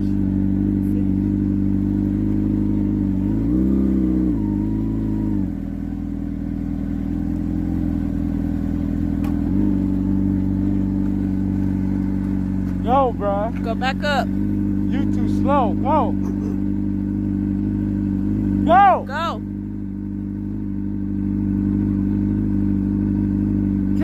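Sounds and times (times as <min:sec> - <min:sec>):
small vehicle motor humming: 0:00.0 - 0:24.0.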